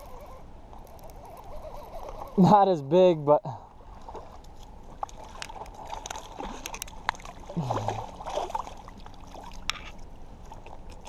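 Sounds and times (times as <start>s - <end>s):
running river water: 0.0s - 11.0s
fish splashing in water: 3.9s - 11.0s.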